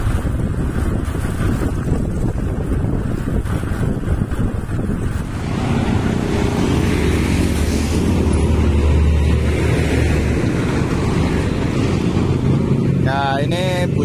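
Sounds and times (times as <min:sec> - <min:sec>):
heavy truck engine passing: 0:00.0 - 0:14.0
road traffic noise: 0:00.0 - 0:14.0.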